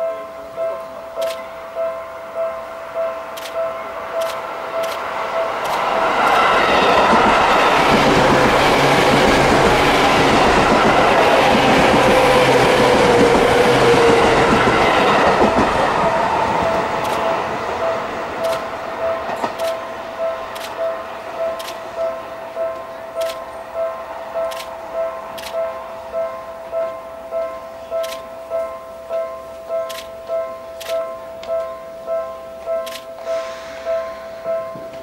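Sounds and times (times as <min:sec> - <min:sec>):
train passing close by: 0:00.0 - 0:35.0
falling whine: 0:02.6 - 0:27.3
wheels clicking over rail joints: 0:03.3 - 0:23.6, 0:24.4 - 0:25.8, 0:26.7 - 0:31.8.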